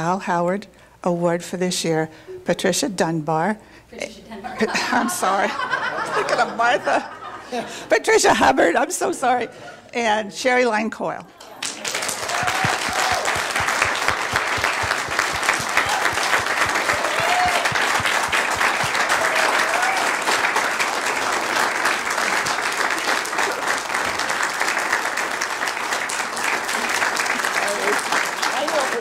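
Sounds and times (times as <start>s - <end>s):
crowd applauding: 11.6s - 29.0s.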